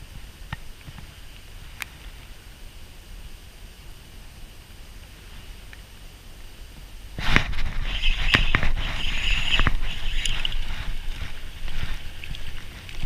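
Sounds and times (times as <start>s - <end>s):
nylon sleeve rustling: 7.2s - 13.0s
fishing rod and reel clicks: 7.7s - 13.0s.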